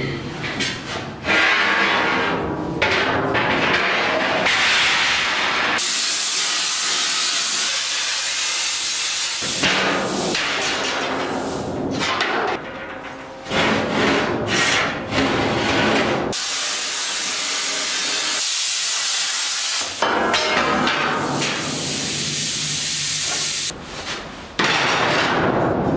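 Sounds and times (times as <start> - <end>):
steel plate scraping and knocking: 0.0 - 5.8, 9.5 - 16.3
cutting torch hissing: 5.8 - 9.6, 16.4 - 20.0, 21.4 - 23.7.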